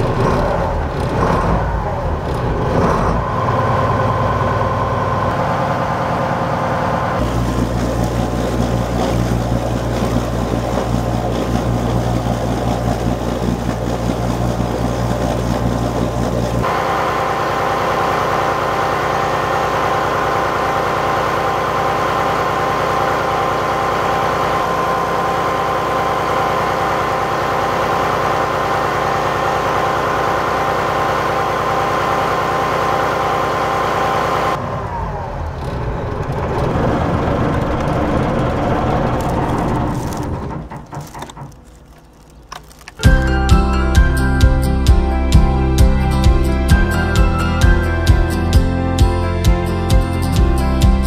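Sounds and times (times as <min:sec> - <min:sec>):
cooling water splashing from exhaust: 0:00.0 - 0:34.7
diesel engine idling: 0:00.0 - 0:48.8.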